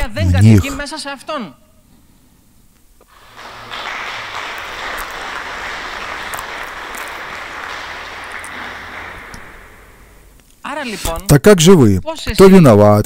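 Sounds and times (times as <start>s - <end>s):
audience applauding: 3.1s - 10.4s.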